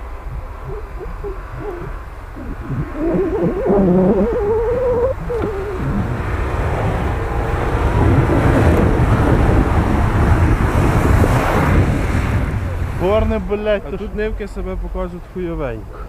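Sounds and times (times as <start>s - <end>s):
wavering hooting tone: 0.0s - 7.0s
engine revving: 0.0s - 13.1s
tyres churning snow: 0.0s - 14.4s.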